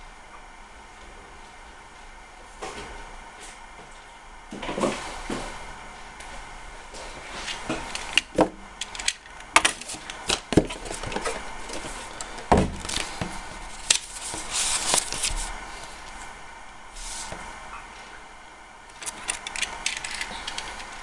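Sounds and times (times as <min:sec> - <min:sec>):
paper rustling: 0:09.7 - 0:16.2.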